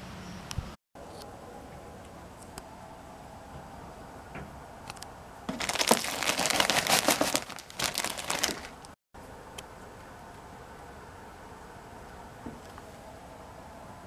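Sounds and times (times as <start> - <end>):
plastic bag crinkling: 5.5 - 9.0.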